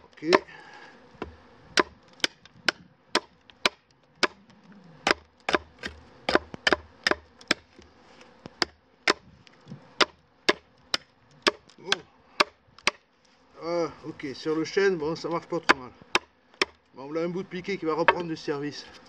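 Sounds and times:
knife chopping wood: 0:00.0 - 0:00.5, 0:01.2 - 0:04.4, 0:05.0 - 0:09.3, 0:10.0 - 0:13.0, 0:15.6 - 0:16.8, 0:18.0 - 0:18.4.

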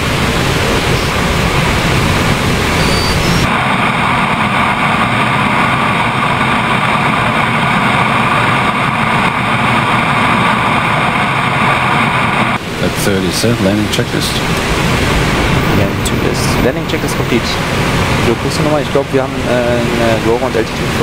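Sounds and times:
jet engines and airflow rushing: 0:00.0 - 0:21.0
muffled cockpit hiss: 0:00.0 - 0:21.0.

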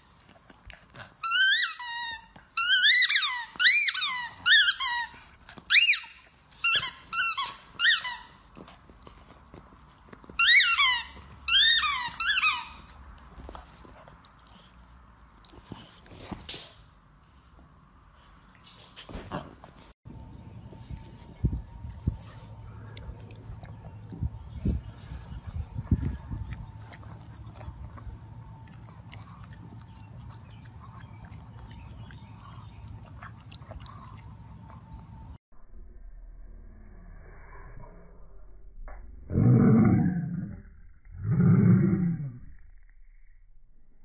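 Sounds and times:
rubber squeaky toy squeaking: 0:01.2 - 0:08.4, 0:10.4 - 0:12.9
dog chewing grass: 0:20.4 - 0:35.3.

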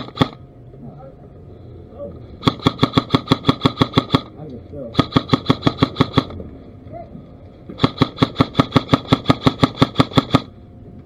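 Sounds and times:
airsoft rifle full-auto burst: 0:00.0 - 0:00.4, 0:02.4 - 0:04.3, 0:05.0 - 0:06.3, 0:07.8 - 0:10.5.

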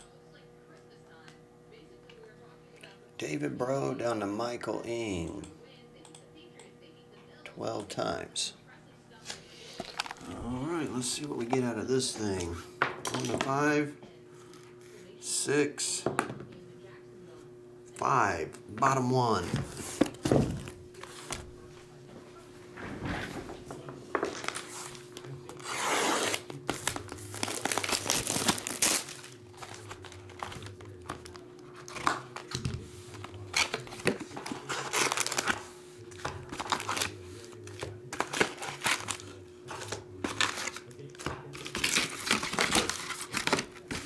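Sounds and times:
faint steady hum: 0:00.0 - 0:44.0
foil packs rustling: 0:09.6 - 0:10.7, 0:24.2 - 0:44.0
cellophane tearing and crinkling: 0:09.8 - 0:10.4, 0:24.4 - 0:32.6, 0:33.2 - 0:44.0.

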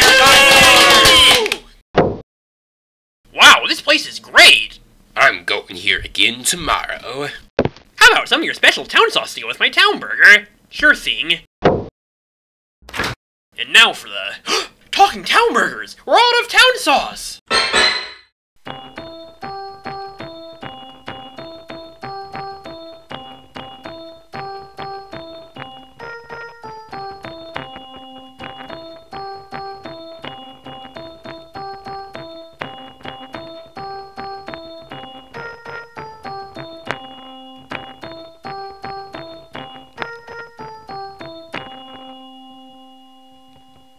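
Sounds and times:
keyboard music: 0:18.6 - 0:43.9.

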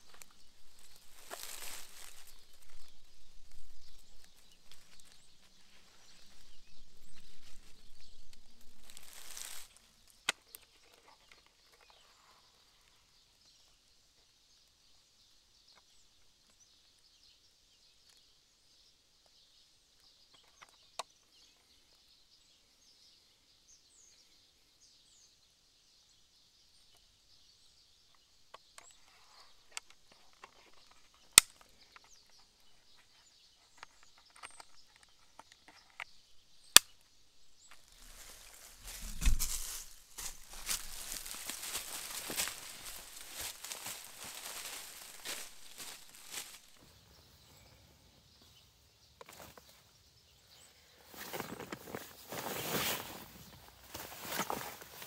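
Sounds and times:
rustling and handling noise: 0:00.0 - 0:12.3, 0:37.6 - 0:46.9, 0:51.1 - 0:55.0
distant birds chirping: 0:00.0 - 0:55.0.

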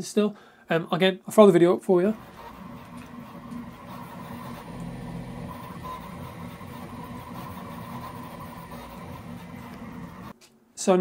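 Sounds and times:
three d printer mechanical hum: 0:02.1 - 0:10.3.

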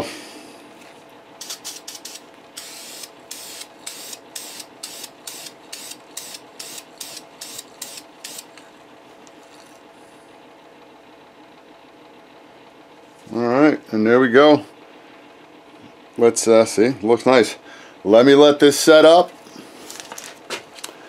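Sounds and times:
aerosol spray can hissing: 0:01.4 - 0:08.5.

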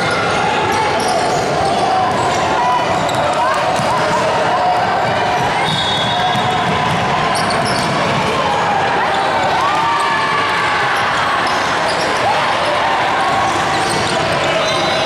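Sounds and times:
basketball bouncing on court: 0:05.0 - 0:08.4.

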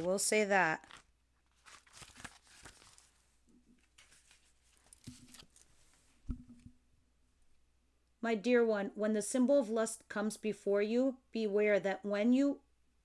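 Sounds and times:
book pages flipping: 0:00.0 - 0:06.7
soft thump: 0:06.2 - 0:06.7.

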